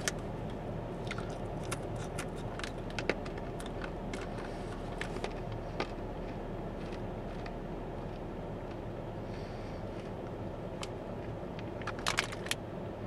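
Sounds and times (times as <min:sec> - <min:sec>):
low car interior hum: 0:00.0 - 0:13.0
chips crunching between teeth: 0:01.0 - 0:08.8.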